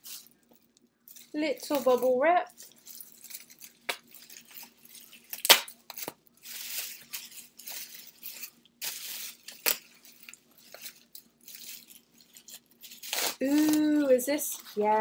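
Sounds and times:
bubble wrap crinkling: 0.0s - 15.0s
sharp bubble wrap crackles: 0.0s - 15.0s.

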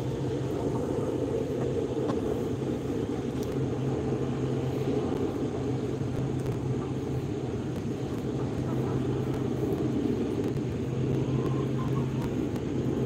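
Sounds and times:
low hum: 0.0s - 13.0s
low mechanical drone: 0.0s - 13.0s.

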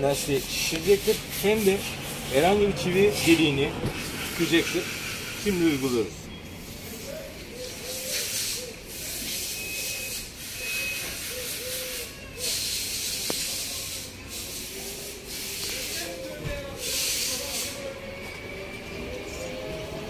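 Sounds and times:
aerosol can hissing into tyre: 0.1s - 6.0s, 8.0s - 16.2s, 16.8s - 17.9s.

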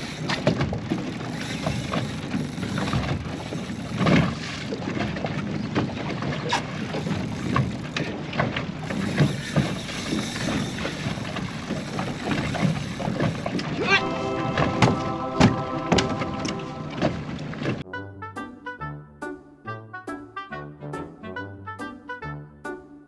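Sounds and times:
water slapping against boat hull: 0.2s - 13.8s.

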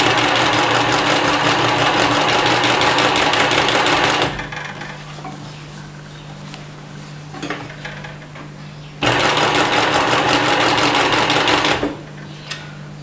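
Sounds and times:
sewing machine stitching: 0.0s - 4.5s, 9.0s - 12.0s.

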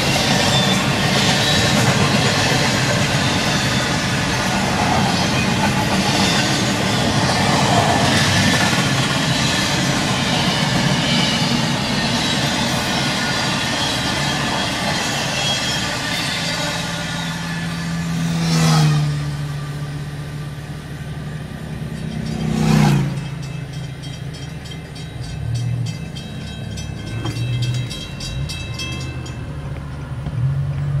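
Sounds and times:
railroad crossing bells ringing: 0.0s - 30.6s
freight train rumbling: 0.0s - 31.0s
car engine: 17.3s - 31.0s.

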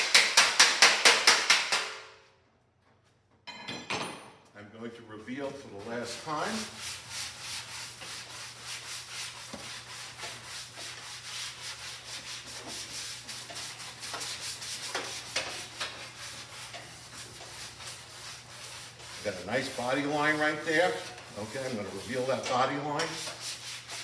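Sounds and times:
sander rubbing on metal: 5.5s - 24.0s.

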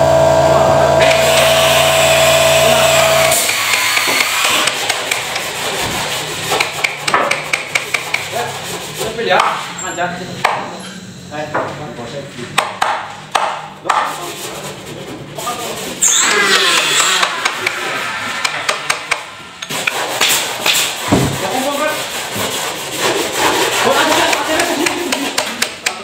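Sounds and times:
hand tool rasping wood: 1.0s - 9.6s, 13.9s - 26.0s.

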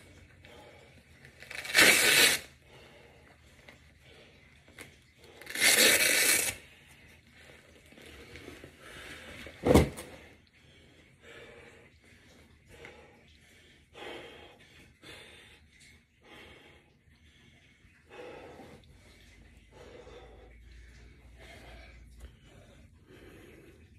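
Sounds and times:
velcro strap tearing: 1.4s - 2.5s, 5.4s - 6.6s
thud: 9.6s - 10.2s.

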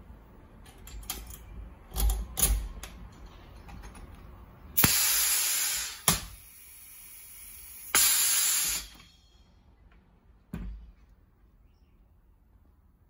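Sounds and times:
air hiss from riveting tool: 4.8s - 9.3s.

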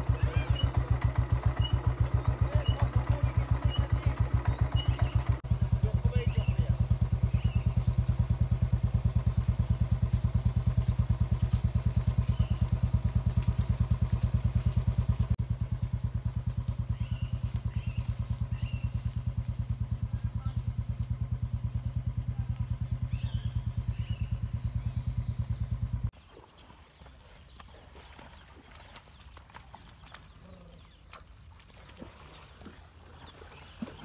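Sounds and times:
motorcycle engine running: 0.0s - 26.2s
faint birds chirping: 0.0s - 34.0s.

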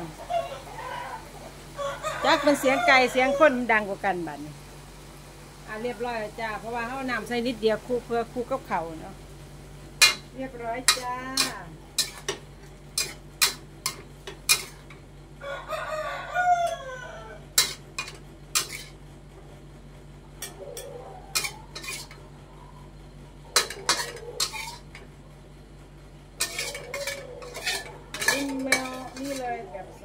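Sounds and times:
rooster crowing: 0.1s - 3.7s, 15.4s - 17.6s, 20.5s - 21.8s, 26.6s - 29.1s
metal spatula scraping wok: 10.0s - 15.0s, 17.5s - 19.0s, 20.4s - 22.2s, 23.6s - 25.1s, 26.4s - 29.9s.

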